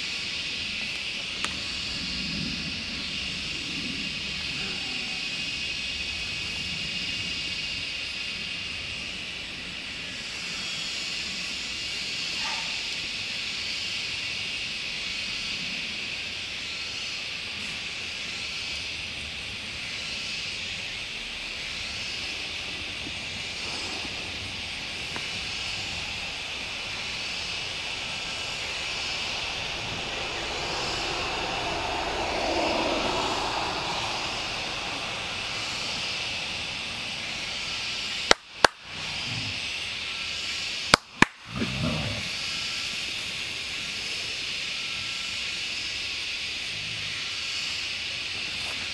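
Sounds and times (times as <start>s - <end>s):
pulsing high-pitched hiss: 0.0s - 48.9s
broad swell of noise: 15.3s - 44.8s.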